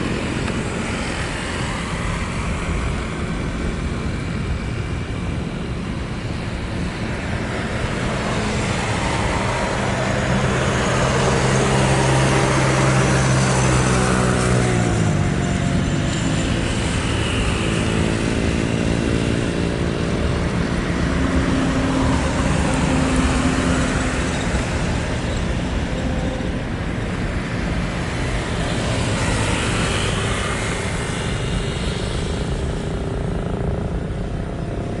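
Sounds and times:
aircraft engine drone: 0.0 - 35.0
rushing engine roar: 0.0 - 35.0.

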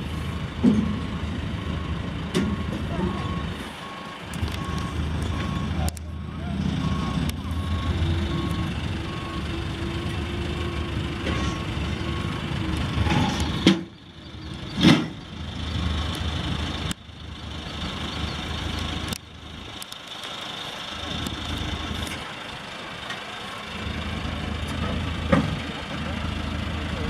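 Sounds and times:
diesel engine under load: 0.0 - 27.0
backup alarm beeping: 1.8 - 9.6.

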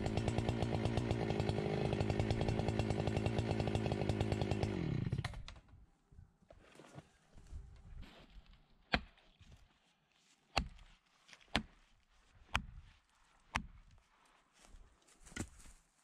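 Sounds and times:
hard strikes on wood: 12.6 - 12.8.

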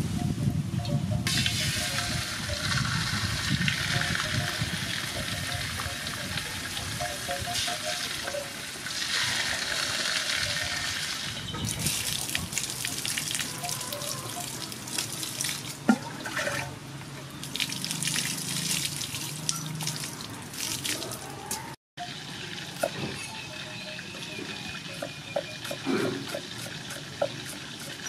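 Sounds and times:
water splashing onto ground: 8.8 - 16.7, 17.4 - 21.6.

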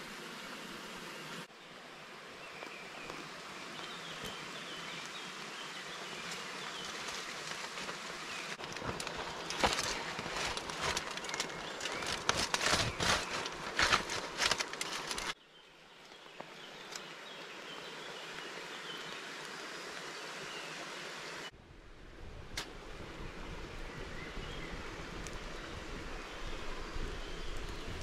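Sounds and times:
outdoor hiss: 0.0 - 28.0
aluminium foil crinkling: 8.6 - 15.4.

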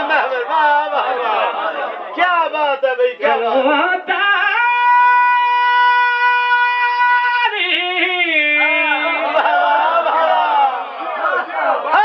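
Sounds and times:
man chanting: 0.0 - 10.7.

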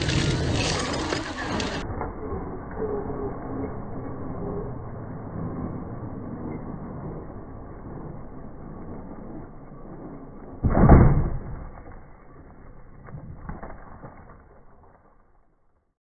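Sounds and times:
loud rush of noise: 0.0 - 12.7
rc truck running over gravel: 0.0 - 15.8.

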